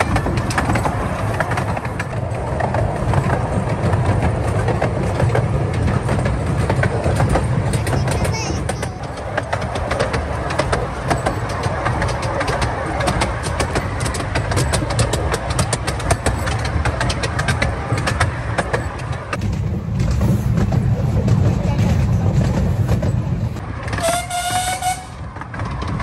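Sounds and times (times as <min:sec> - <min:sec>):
miniature train rumbling: 0:00.0 - 0:26.0
wheels clicking over rail joints: 0:00.0 - 0:26.0.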